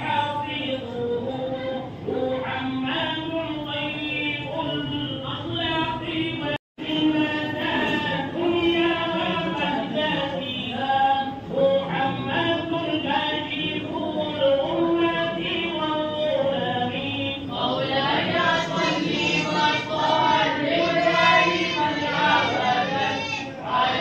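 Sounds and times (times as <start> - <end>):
group chanting long held notes: 11.2 - 24.0.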